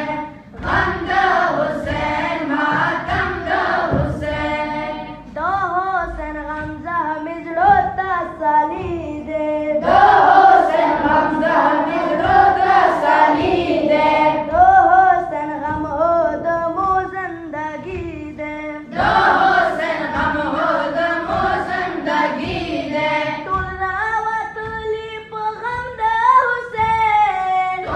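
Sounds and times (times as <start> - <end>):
boys chanting in unison: 0.0 - 5.3, 7.6 - 16.7, 18.2 - 23.6.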